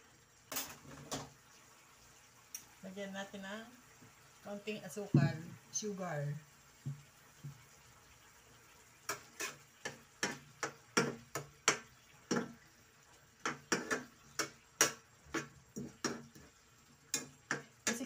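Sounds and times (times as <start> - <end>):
metal spatula scraping a frying pan: 9.0 - 12.5, 13.4 - 16.5.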